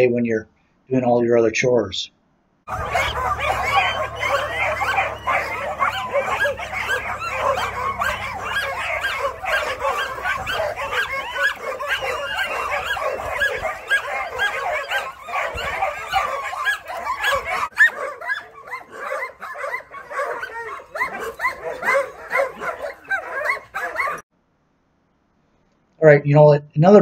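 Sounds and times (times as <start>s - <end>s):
dogs barking and yipping: 2.7s - 24.2s.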